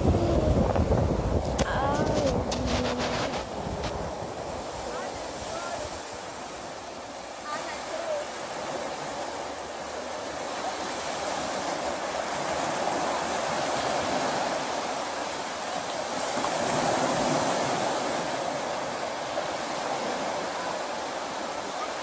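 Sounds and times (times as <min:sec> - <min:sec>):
small waves breaking on shore: 0:00.0 - 0:22.0.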